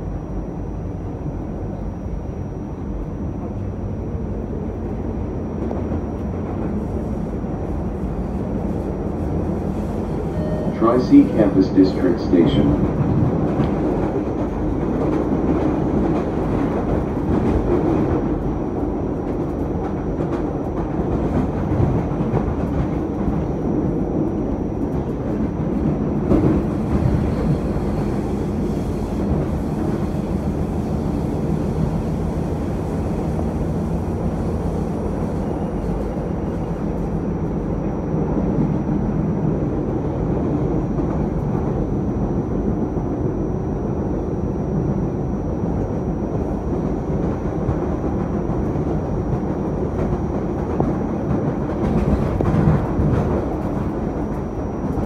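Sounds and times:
train wheels rumbling: 0.0s - 55.0s
rail clicks and knocks: 46.8s - 55.0s.

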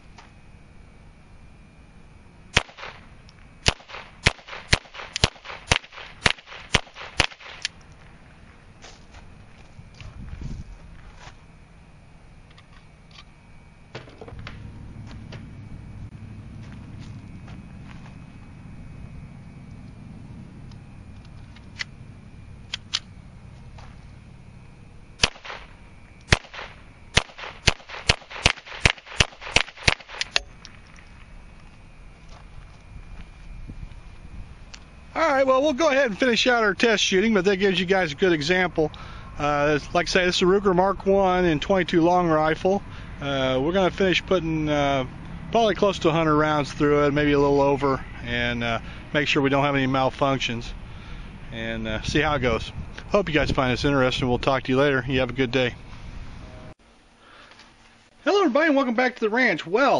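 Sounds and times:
pistol shots with echo: 2.5s - 7.7s, 25.2s - 30.4s.

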